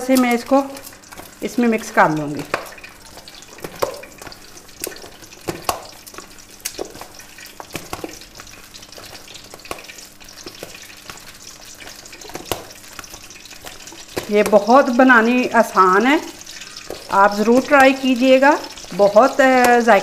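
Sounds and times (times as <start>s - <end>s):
hands squelching food in a bowl: 0.0s - 15.4s, 16.3s - 20.0s.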